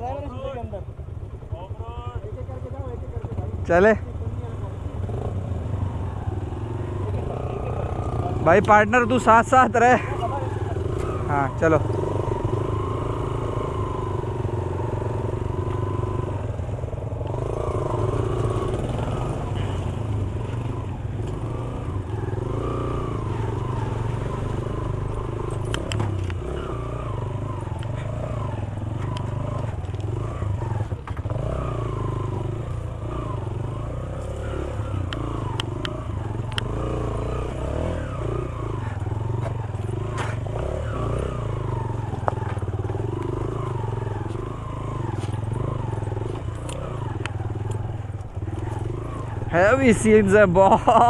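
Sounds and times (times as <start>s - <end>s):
motorcycle engine running: 0.0s - 51.0s
stones clacking against bike: 25.1s - 26.8s, 30.9s - 31.6s, 38.8s - 40.9s, 42.1s - 43.4s, 44.2s - 49.2s.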